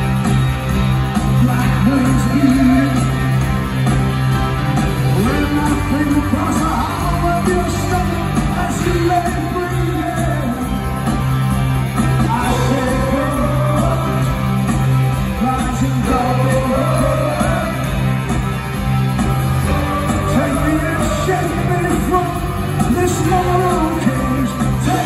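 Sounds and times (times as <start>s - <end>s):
live rock band with horns: 0.0s - 25.0s
man singing lead vocal: 1.4s - 3.3s, 5.2s - 10.8s, 12.2s - 14.6s, 15.3s - 18.1s, 19.8s - 25.0s.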